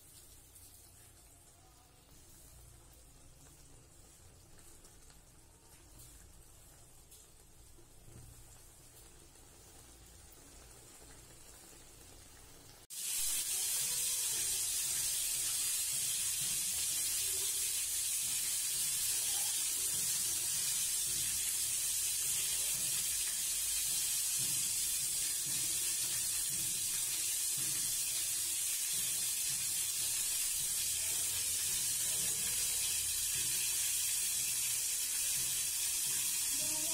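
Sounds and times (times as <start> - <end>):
loud steady hissing: 12.9 - 36.9.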